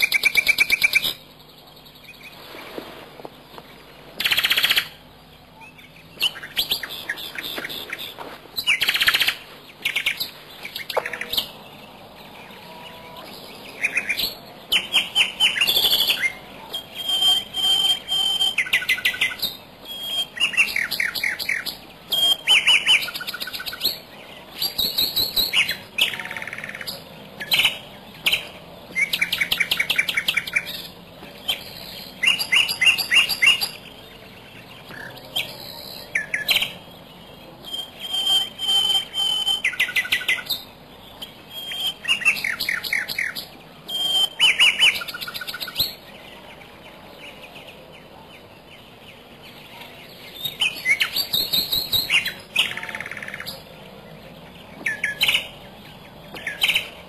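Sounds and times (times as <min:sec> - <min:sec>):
bird whistle: 0:00.0 - 0:01.3, 0:04.2 - 0:11.6, 0:13.8 - 0:33.9, 0:37.6 - 0:46.0, 0:50.3 - 0:53.6
birds chirping: 0:00.0 - 0:57.0.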